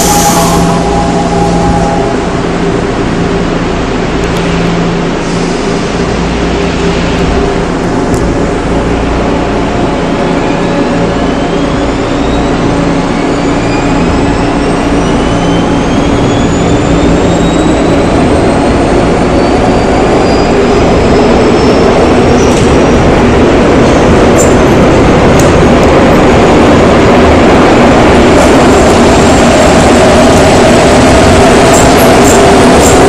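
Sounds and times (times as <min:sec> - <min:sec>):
train motor whine rising: 0:00.0 - 0:03.4
train running rumble: 0:00.0 - 0:33.0.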